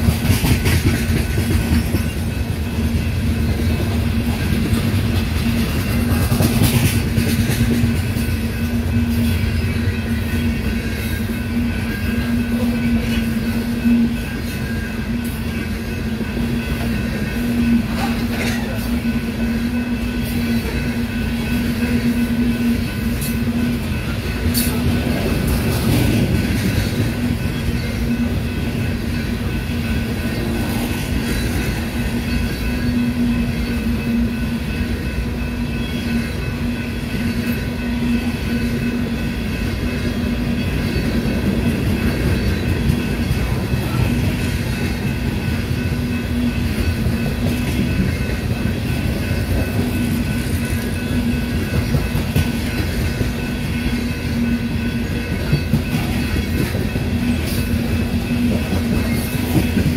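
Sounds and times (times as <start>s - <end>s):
train wheels rumbling on rail: 0.0s - 59.9s.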